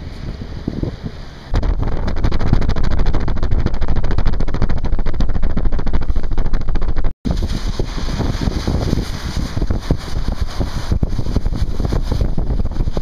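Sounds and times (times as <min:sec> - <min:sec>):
gusty wind buffeting microphone: 0:00.0 - 0:13.0.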